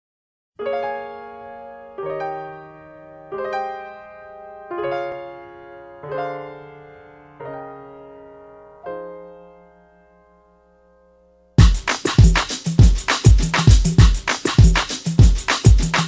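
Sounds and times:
piano chords ringing: 0:00.6 - 0:11.6.

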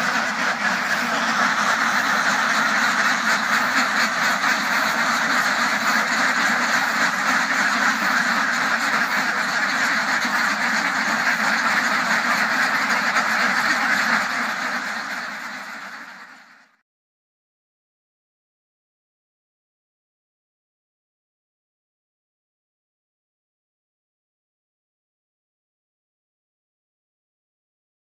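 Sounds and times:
flock of ducks quacking: 0:00.0 - 0:16.8.

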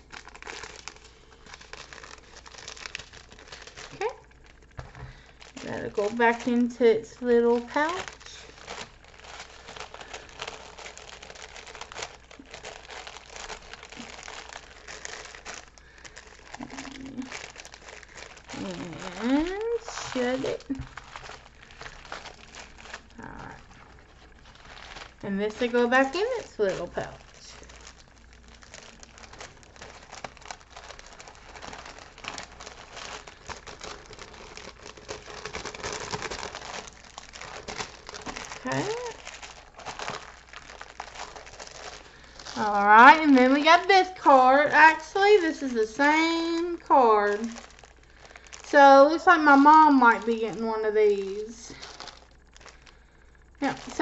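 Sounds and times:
plastic bags crinkling: 0:00.0 - 0:54.0.

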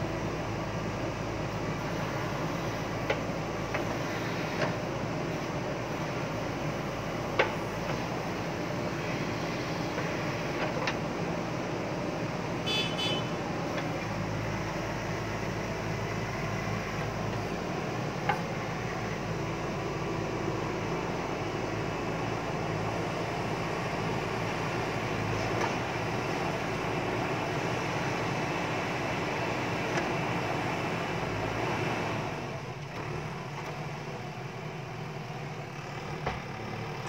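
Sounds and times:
diesel engine running: 0:00.0 - 0:37.0
backhoe arm and bucket clanks: 0:02.2 - 0:08.8, 0:09.9 - 0:11.2, 0:13.7 - 0:20.0, 0:35.7 - 0:37.0.

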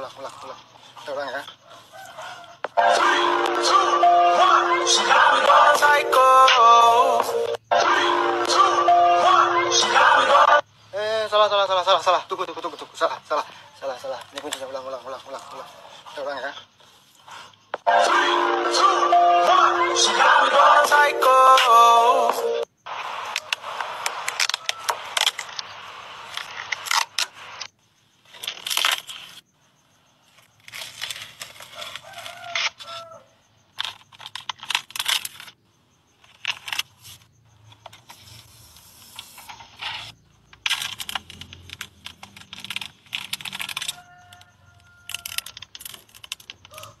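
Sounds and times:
plastic film peeling and crackling: 0:23.4 - 0:27.7, 0:28.3 - 0:29.4, 0:30.3 - 0:33.0, 0:33.8 - 0:35.6, 0:37.9 - 0:46.9.

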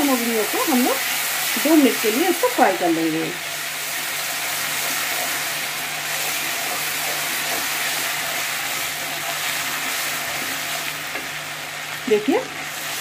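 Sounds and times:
spatula stirring in a wok: 0:00.0 - 0:13.0
spice paste sizzling in oil: 0:00.0 - 0:13.0.

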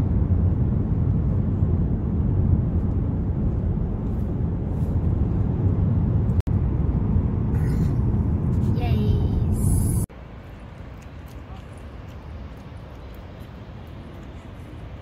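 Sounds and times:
road and engine rumble inside car: 0:00.0 - 0:10.1.

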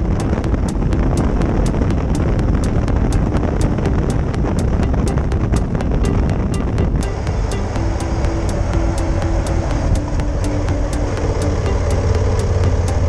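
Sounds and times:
light high ticking: 0:00.0 - 0:13.0
motorcycle engine rumble: 0:00.0 - 0:13.0
road noise: 0:00.0 - 0:13.0
wind rushing over microphone: 0:00.0 - 0:13.0.

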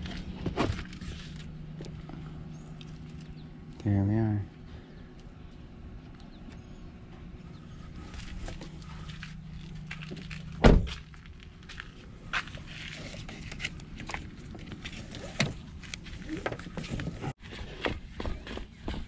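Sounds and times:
car door shutting with thud: 0:10.6 - 0:11.0.

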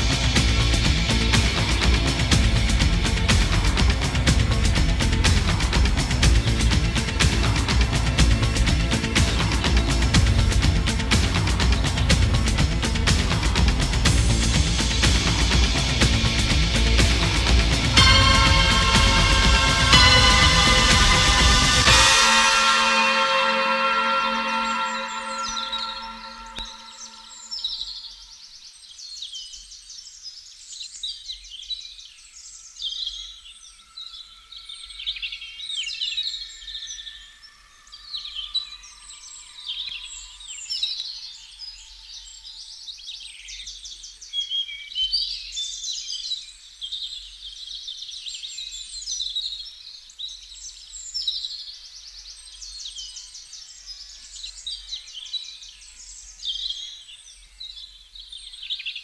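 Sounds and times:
music held notes: 0:00.0 - 0:27.6
birds chirping and trilling: 0:23.0 - 0:59.0.

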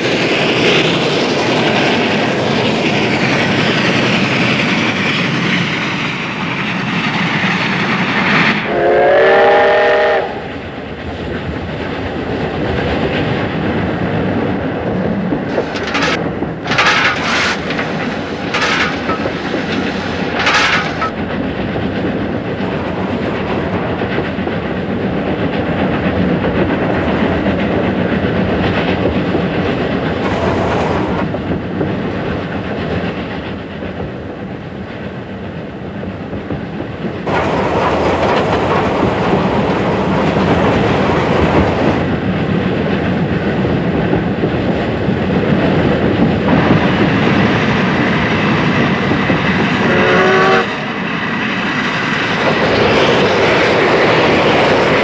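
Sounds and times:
steam locomotive rumbling: 0:00.0 - 0:55.0
steam whistle blast: 0:08.7 - 0:10.5, 0:49.9 - 0:50.7.

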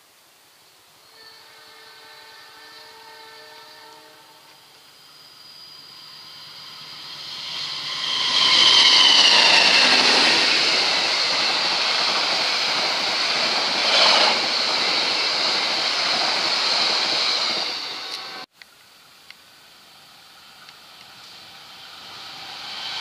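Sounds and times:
train passing at speed: 0:01.1 - 0:18.5, 0:19.5 - 0:23.0
wheels rushing on rail: 0:01.2 - 0:18.5, 0:19.4 - 0:23.0.

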